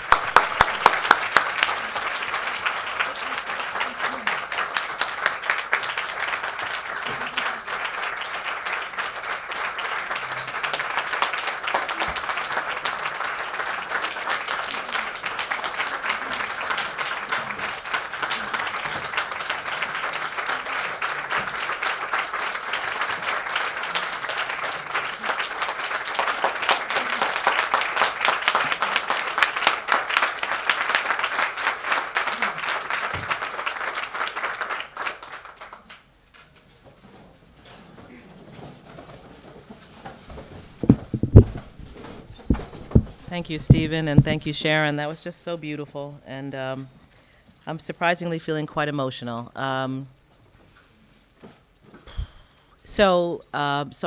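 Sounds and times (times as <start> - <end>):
loud claps close by: 0.0 - 36.0, 40.3 - 44.5
crowd applauding: 0.0 - 36.1, 40.3 - 44.5.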